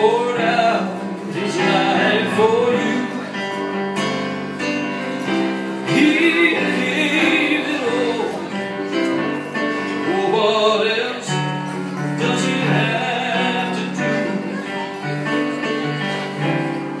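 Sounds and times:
man singing: 0.0 - 3.6, 5.8 - 8.9, 9.6 - 14.8
acoustic guitar chords: 0.0 - 17.0
digital piano chords: 0.0 - 17.0.

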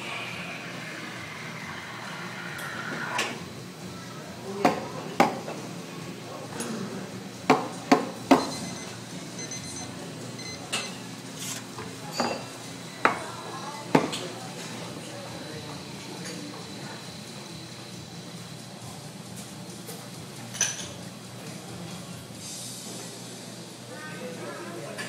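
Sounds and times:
espresso machine running: 0.0 - 3.9, 11.9 - 20.0
cafe background: 0.0 - 25.0
cups clinking: 10.6 - 13.2.

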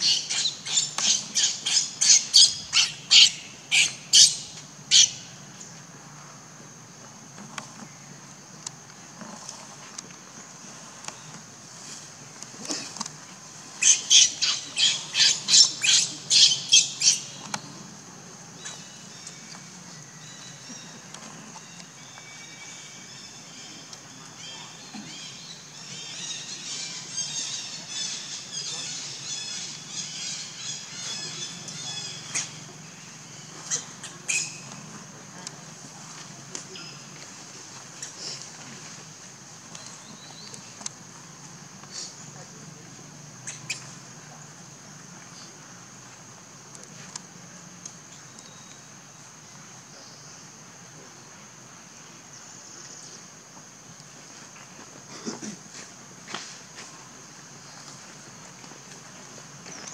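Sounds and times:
infant monkey screaming: 0.0 - 5.1, 13.8 - 17.3.

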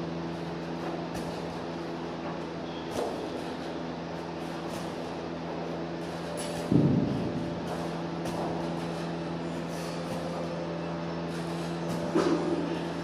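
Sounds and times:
steady low hum: 0.0 - 13.0
medicine ball heavy thud: 1.0 - 1.8, 2.7 - 3.5, 6.5 - 9.2.

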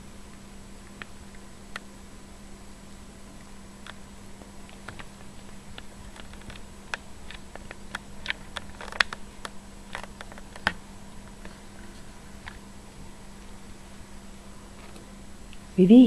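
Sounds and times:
steady low hum: 0.0 - 16.0
kitten paws clicking and scratching: 3.9 - 12.6.

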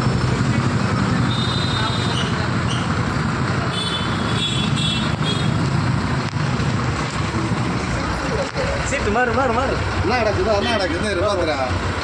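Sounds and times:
bus engine running: 0.0 - 12.0
road noise: 0.0 - 12.0.

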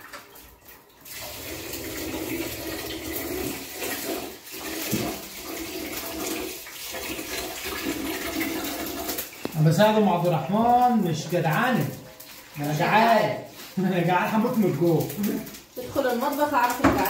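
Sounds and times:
tap water running into pot: 0.0 - 17.0.

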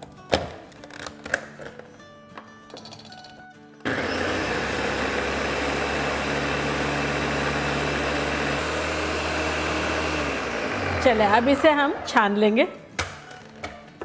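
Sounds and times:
electric blender running: 3.9 - 12.1.

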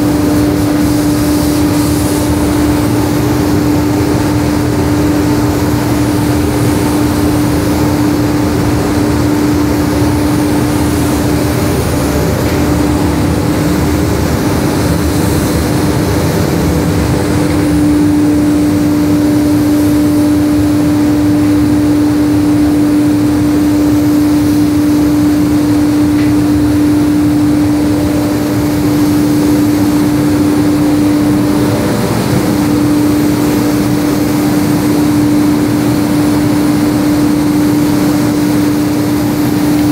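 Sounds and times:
spray booth machinery hum: 0.0 - 39.9
spray gun hissing: 0.0 - 39.9.

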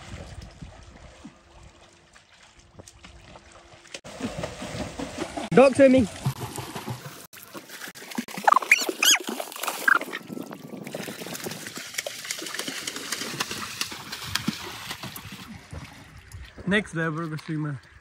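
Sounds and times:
water splashing in pool: 0.0 - 16.2
high squealing voice: 8.5 - 9.2.

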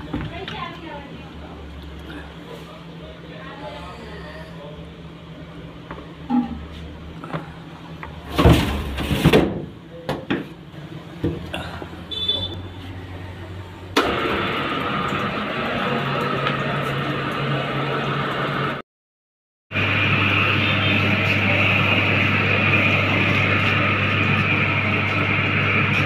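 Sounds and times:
mixing machine motor running: 11.4 - 18.8, 19.7 - 26.0.

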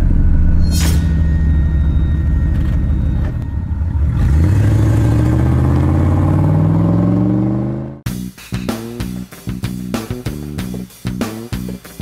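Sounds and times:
car engine revving: 3.5 - 8.1.

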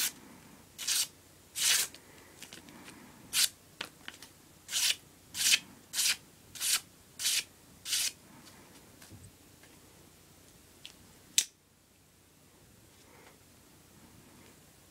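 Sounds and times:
knife slicing paper: 0.8 - 1.9, 4.7 - 8.2.

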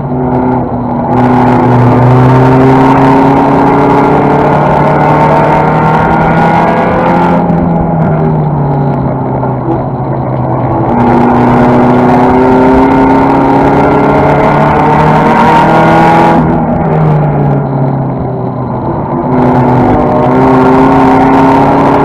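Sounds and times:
race car engine running hard: 0.0 - 22.0.

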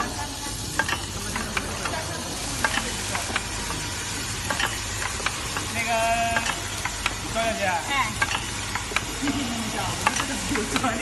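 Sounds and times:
machine hiss: 0.0 - 11.0
sharp mechanical clicks: 0.7 - 7.4, 8.2 - 9.4.

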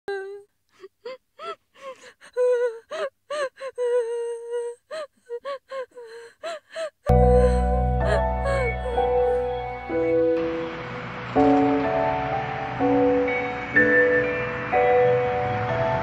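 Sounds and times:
person sobbing: 0.1 - 9.6.

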